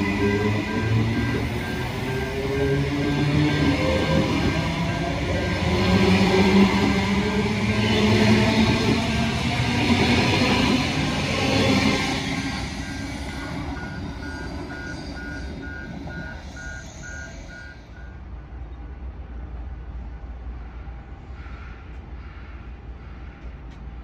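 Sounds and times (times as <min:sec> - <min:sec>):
electronic warning beeps: 0:00.0 - 0:06.0, 0:12.5 - 0:18.2
electric train pulling away: 0:00.0 - 0:18.5.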